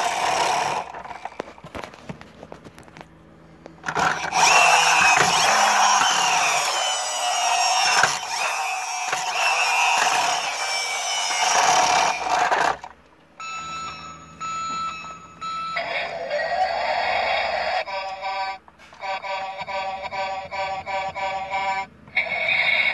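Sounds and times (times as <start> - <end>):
toy friction motor whirring: 0.0 - 1.5, 3.8 - 12.9, 16.6 - 22.9
electronic toy sound effects: 3.9 - 12.7, 15.8 - 22.9.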